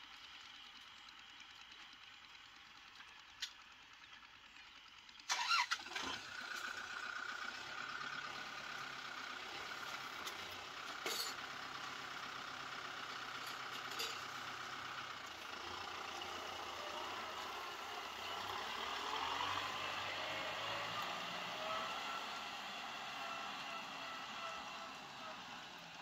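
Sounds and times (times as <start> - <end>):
tractor diesel engine starting and running: 0.0 - 26.0.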